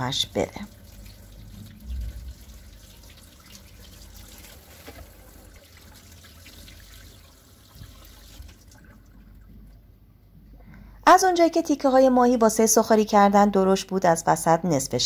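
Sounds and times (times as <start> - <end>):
tap water running and splashing: 0.0 - 9.8.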